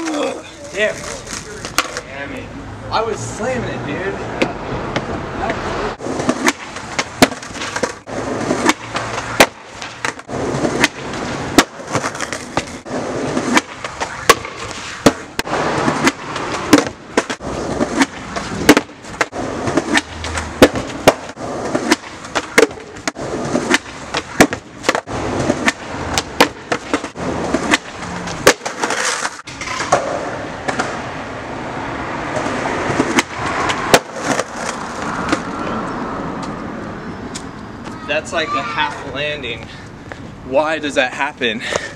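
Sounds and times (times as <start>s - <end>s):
skateboard wheels rolling on concrete: 0.0s - 41.9s
skateboard pops and slaps: 6.1s - 31.0s, 32.4s - 35.5s.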